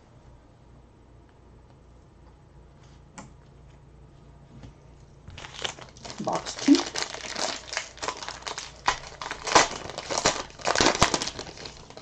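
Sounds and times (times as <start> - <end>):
foil wrapper crinkling: 5.3 - 12.0.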